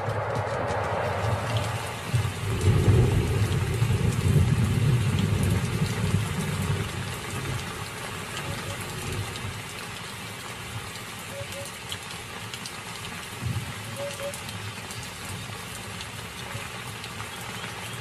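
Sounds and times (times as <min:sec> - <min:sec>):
deep rumble: 0:00.0 - 0:05.3
storm wind gusting: 0:00.0 - 0:07.0
rain falling: 0:00.0 - 0:18.0.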